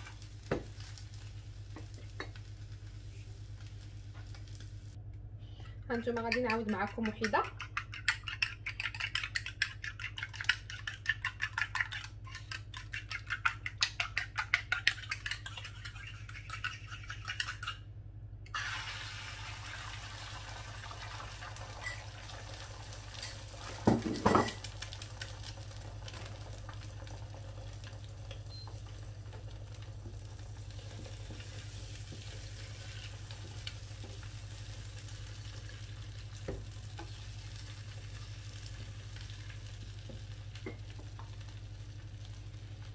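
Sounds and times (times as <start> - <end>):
eggs sizzling in frying pan: 0.0 - 5.0, 6.0 - 17.8, 18.5 - 42.9
fork beating eggs in bowl: 5.9 - 17.8.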